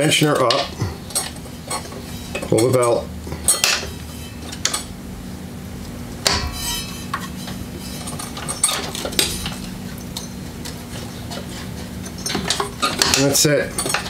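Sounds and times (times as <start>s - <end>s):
ringing metal clank: 6.2s - 10.4s
metal clinks and knocks: 6.2s - 14.0s.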